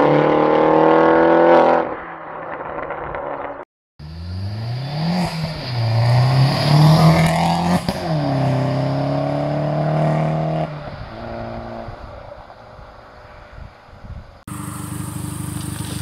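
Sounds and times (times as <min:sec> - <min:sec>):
car accelerating hard: 0:00.0 - 0:02.0, 0:04.0 - 0:12.0
exhaust crack: 0:14.5 - 0:16.0.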